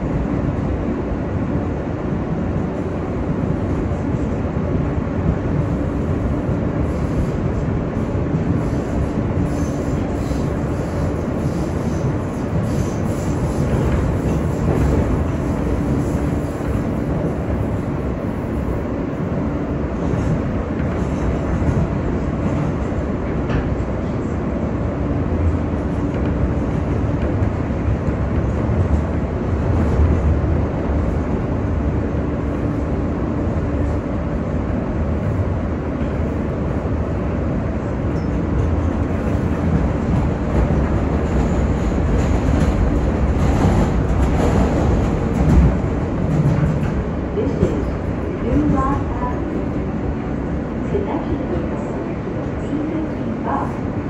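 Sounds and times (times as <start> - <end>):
subway wheels rumbling on rails: 0.0 - 54.0.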